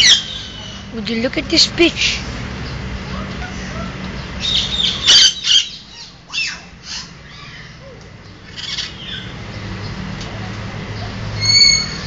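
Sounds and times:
parrots squawking: 0.0 - 0.9, 3.1 - 9.4, 11.4 - 12.0.

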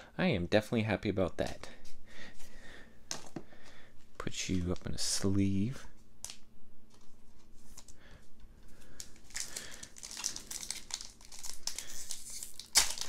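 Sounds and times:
foil wrapper crinkling and tearing: 8.9 - 13.0.

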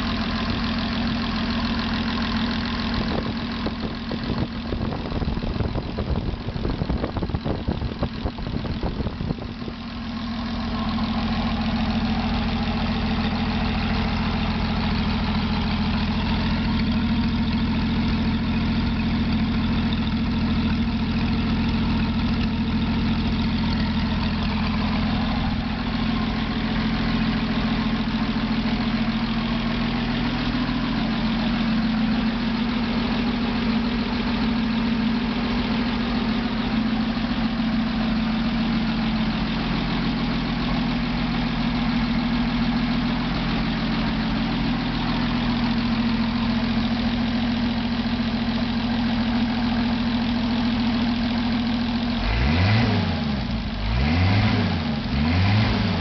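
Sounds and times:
flathead engine idling: 0.0 - 56.0
engine revving: 52.2 - 56.0.

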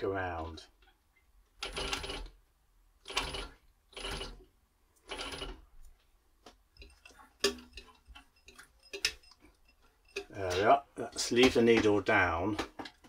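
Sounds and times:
sewing machine running: 1.6 - 2.3, 3.0 - 4.4, 5.0 - 5.6.

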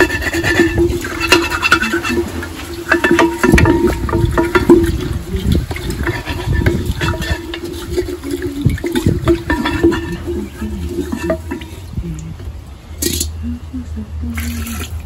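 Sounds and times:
water sloshing in a pot: 0.0 - 15.0
utensil knocking against pot: 2.9 - 5.1.

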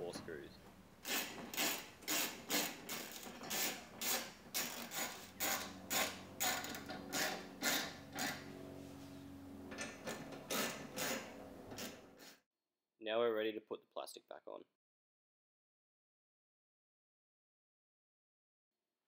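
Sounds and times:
ratchet wrench clicking: 1.1 - 8.4.

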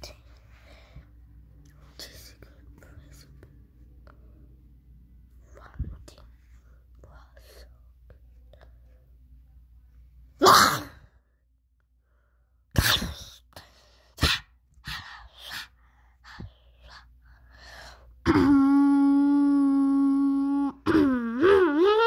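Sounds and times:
person moaning: 18.2 - 22.0.

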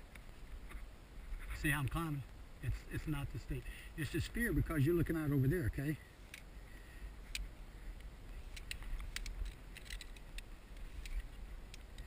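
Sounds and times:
clicks and rustles of climbing gear: 0.0 - 2.0, 6.2 - 6.5, 7.2 - 12.0.

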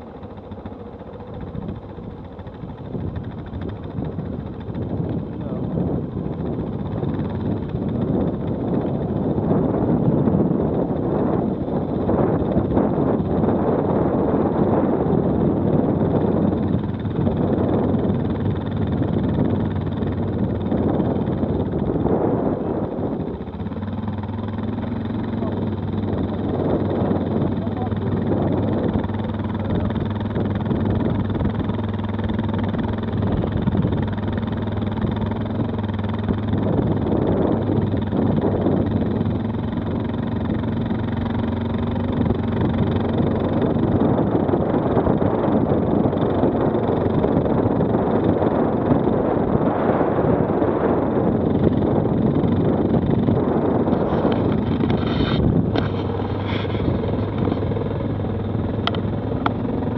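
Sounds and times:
quad bike engine running: 0.0 - 59.9
wind and terrain noise: 0.0 - 59.9.

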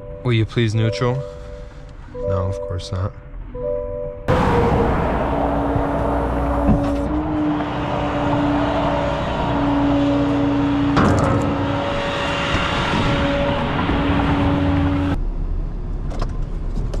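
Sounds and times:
hydraulic winch whining: 5.4 - 15.2
sharp metallic clank: 10.4 - 15.2.

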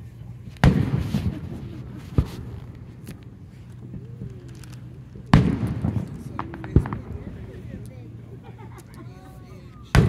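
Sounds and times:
firework shells booming: 0.4 - 8.4.

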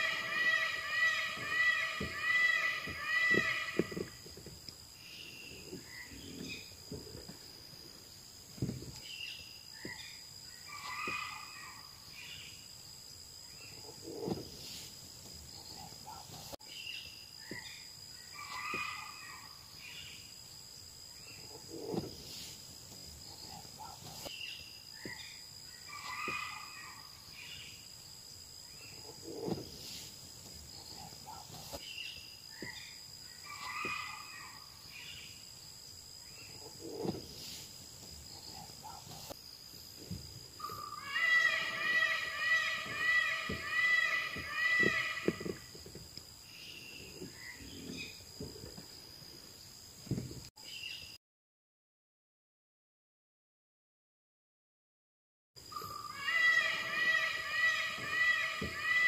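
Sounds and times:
high-pitched insect drone: 0.0 - 6.7
bird chirping: 0.0 - 7.1, 40.6 - 45.8.

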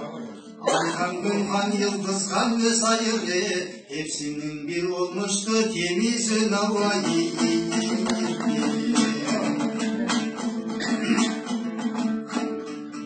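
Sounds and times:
dombra strumming: 0.0 - 13.0.

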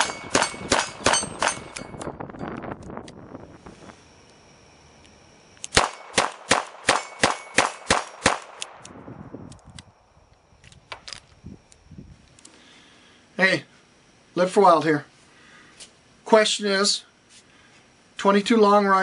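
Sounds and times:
rapid revolver shots: 0.0 - 1.9, 5.7 - 8.9.

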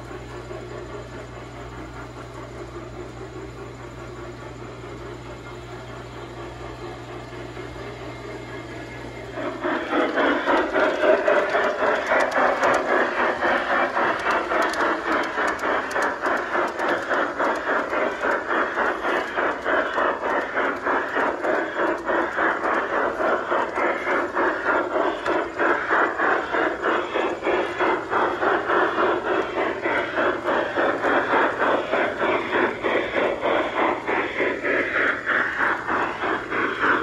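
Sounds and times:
model train wheels clattering on rails: 0.0 - 37.0.

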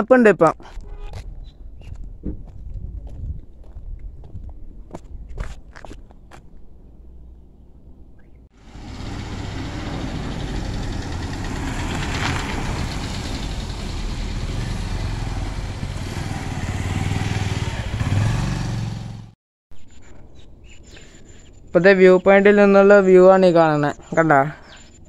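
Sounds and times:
road noise: 0.6 - 19.4
vehicle engine running: 8.6 - 19.4.

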